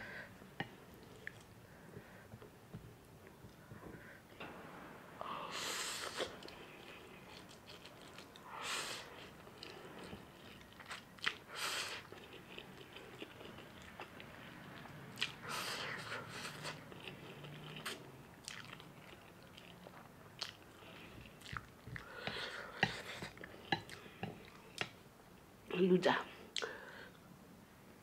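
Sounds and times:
wet chewing: 16.3 - 24.9.

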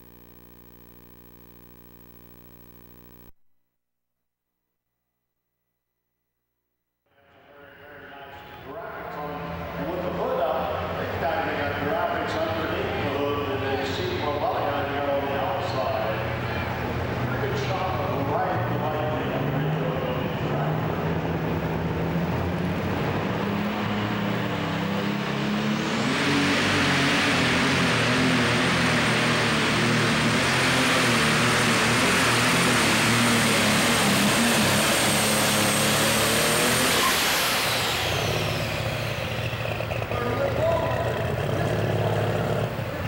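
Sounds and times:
tractor engine revving: 8.7 - 43.0.

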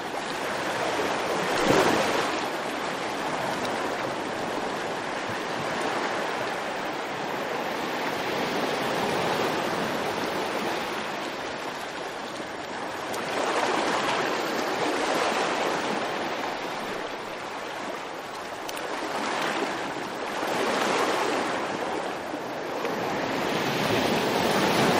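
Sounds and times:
waves rushing: 0.0 - 24.9.

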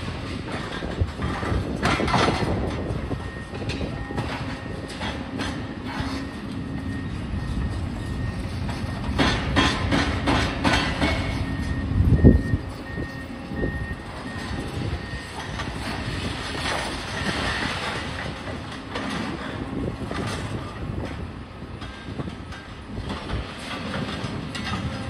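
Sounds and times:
diesel engines running: 0.0 - 25.0
concrete rubble clanking: 0.3 - 6.3
warning beeper: 11.4 - 15.3.

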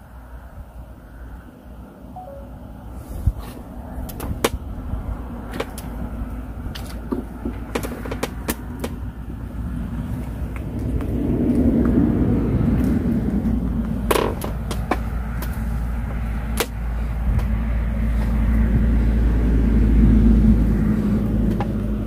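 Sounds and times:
steady low rumble: 0.0 - 22.0
sharp clicks and knocks: 5.5 - 6.0, 6.7 - 9.0, 14.1 - 15.6.

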